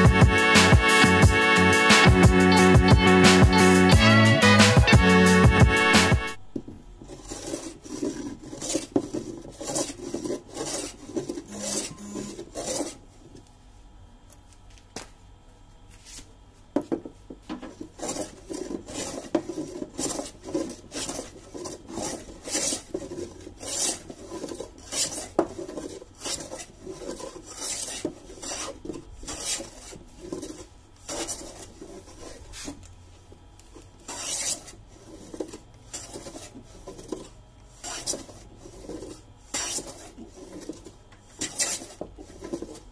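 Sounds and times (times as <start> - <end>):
wooden block scraping wooden plank: 7.0 - 13.0, 17.7 - 32.8, 34.1 - 42.9.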